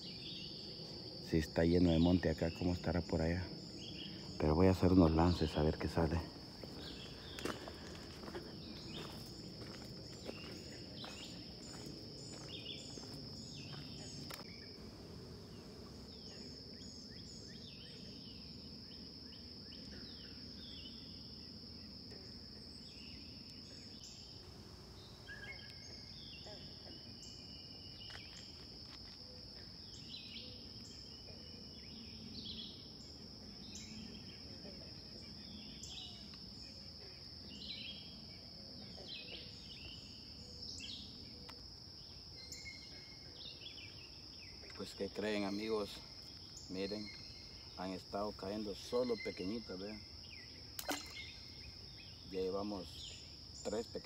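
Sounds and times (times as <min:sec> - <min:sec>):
birds chirping: 0:00.0 - 0:22.0, 0:29.2 - 0:54.0
insects trilling: 0:00.0 - 0:54.0.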